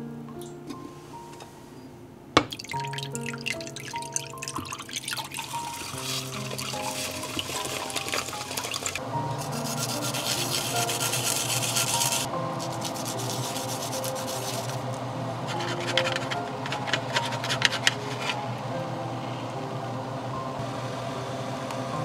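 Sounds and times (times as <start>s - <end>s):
metal spatula scraping clay pot: 5.8s - 14.8s, 15.5s - 18.4s
garlic grating on metal grater: 5.8s - 14.9s, 15.5s - 18.4s.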